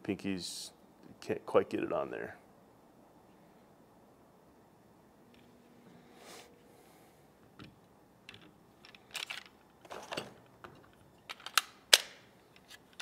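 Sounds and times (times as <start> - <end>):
pistol parts clicking: 7.6 - 9.8, 10.5 - 13.0
magazine clicking into grip: 11.3 - 12.2.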